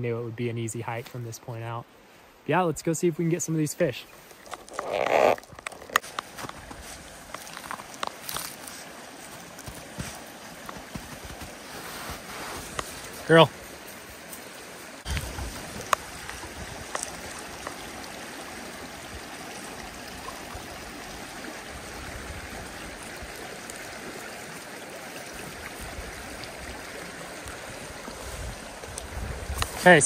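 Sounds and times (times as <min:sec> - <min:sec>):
creek babbling over stones: 0:00.0 - 0:30.0.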